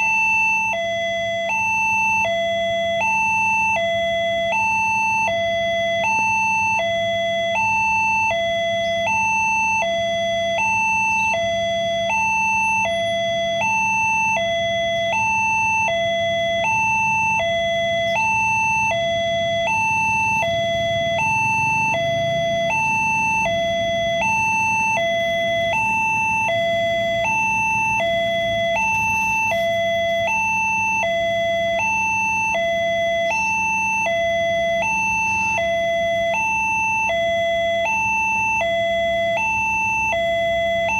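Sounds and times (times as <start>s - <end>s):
two-tone crossing alarm: 0.0s - 40.9s.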